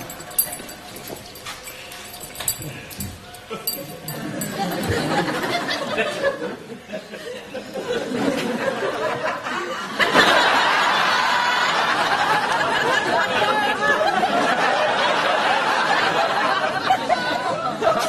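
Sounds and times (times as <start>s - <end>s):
studio audience laughing: 5.0s - 18.0s.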